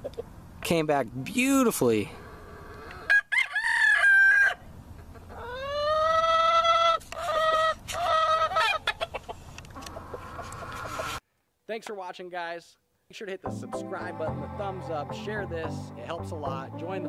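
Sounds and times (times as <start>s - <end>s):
roosters crowing and clucking: 2.1s - 11.2s.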